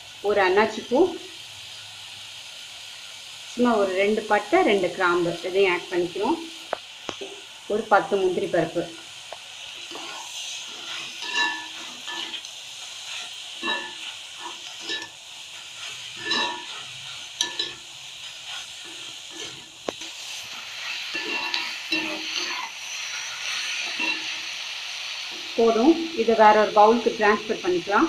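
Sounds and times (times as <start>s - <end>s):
food sizzling in oil: 0.0s - 28.0s
metal spoon scraping a pan: 9.7s - 24.6s.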